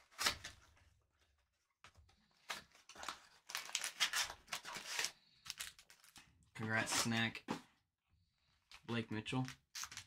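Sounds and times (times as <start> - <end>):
plastic crinkling and rustling: 0.0 - 7.3.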